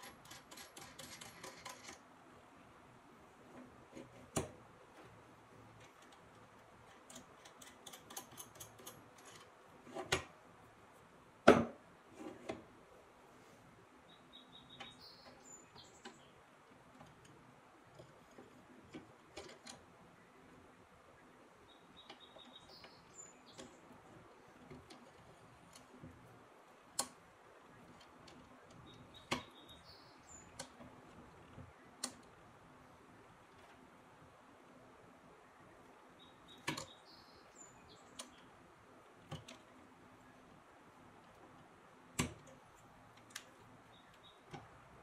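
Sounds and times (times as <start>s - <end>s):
metal parts clicking and knocking: 0.0s - 2.0s, 5.8s - 10.2s.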